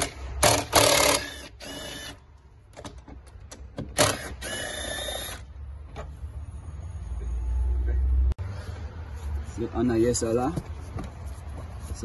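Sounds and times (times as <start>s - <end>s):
impact wrench hammering: 0.0s - 2.1s.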